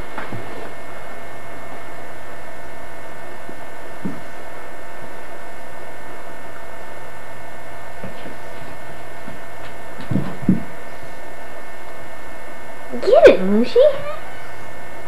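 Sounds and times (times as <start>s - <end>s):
recording hum and hiss: 0.0s - 15.0s
soft thumps: 10.0s - 10.8s.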